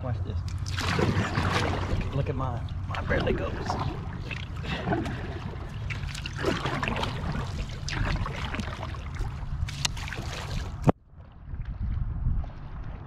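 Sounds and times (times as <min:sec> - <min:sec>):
low rumble: 0:00.0 - 0:09.8
water trickling along boat hull: 0:00.4 - 0:13.0
short water splashes: 0:00.5 - 0:11.0.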